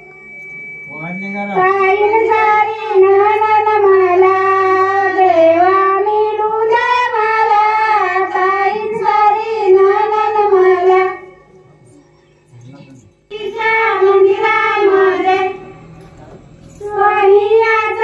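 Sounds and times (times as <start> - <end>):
low sound system hum: 0.0 - 18.0
woman singing into microphone: 1.6 - 11.3, 13.3 - 15.8, 16.8 - 18.0.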